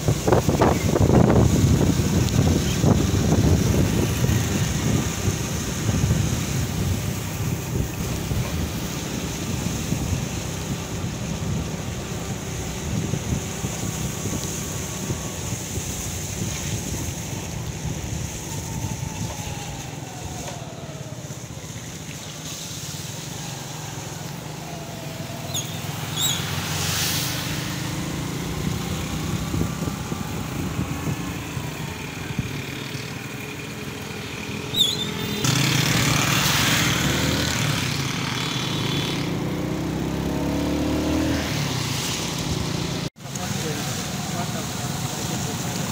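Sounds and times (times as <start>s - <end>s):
wind noise on microphone: 0.0s - 21.2s, 23.5s - 32.9s.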